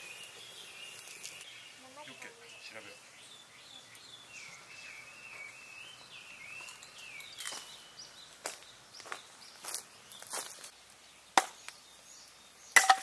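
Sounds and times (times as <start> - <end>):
campfire crackles: 0.0 - 4.5.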